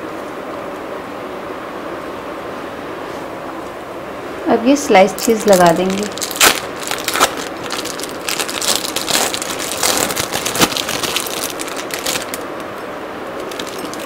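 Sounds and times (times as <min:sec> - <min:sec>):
plastic wrapper crinkling: 0:05.1 - 0:12.7, 0:13.4 - 0:14.0.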